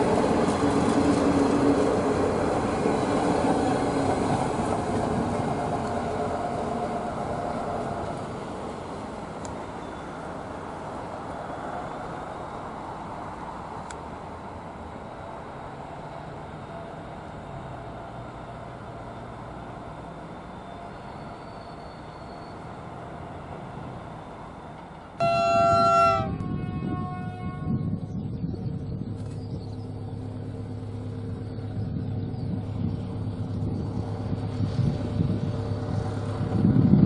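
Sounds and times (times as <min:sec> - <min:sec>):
train wheels rumbling: 0:00.0 - 0:37.0
locomotive horn: 0:25.2 - 0:28.1.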